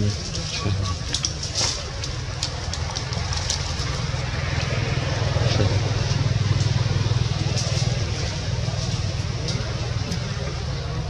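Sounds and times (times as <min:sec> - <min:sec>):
engine humming: 0:00.0 - 0:11.0.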